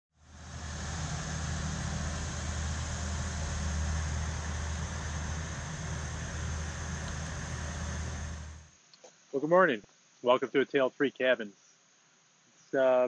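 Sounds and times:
low mechanical hum: 0:00.2 - 0:08.8.

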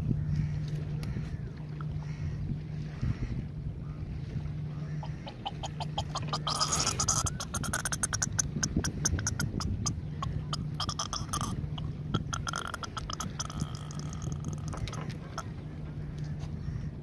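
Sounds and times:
catfish croaking and grunting: 0:04.9 - 0:15.7.

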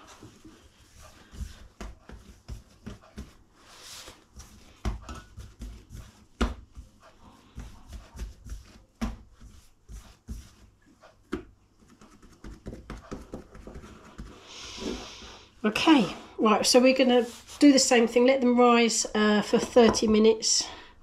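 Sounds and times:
hands patting bread dough: 0:00.0 - 0:14.6.

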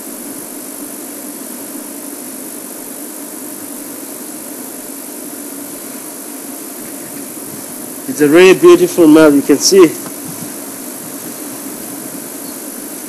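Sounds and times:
constant hiss: 0:00.0 - 0:13.0.

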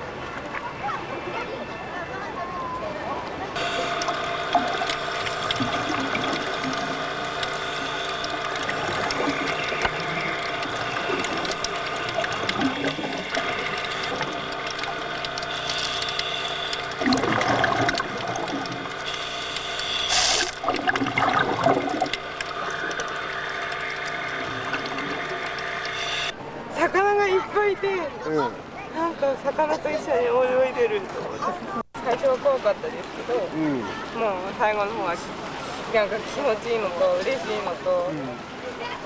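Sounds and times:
steady droning background: 0:03.5 - 0:26.8
underwater air bubbles rushing: 0:03.6 - 0:26.4.

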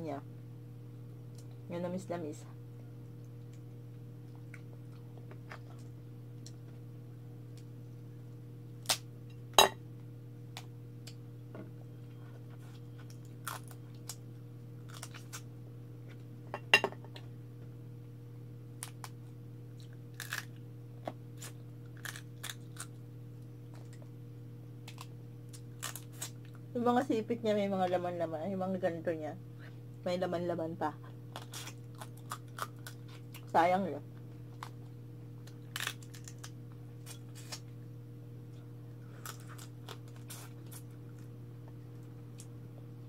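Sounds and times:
steady low hum: 0:00.0 - 0:43.0
crab shell cracking: 0:20.1 - 0:20.6, 0:21.4 - 0:23.0, 0:24.8 - 0:26.5, 0:35.4 - 0:37.6.

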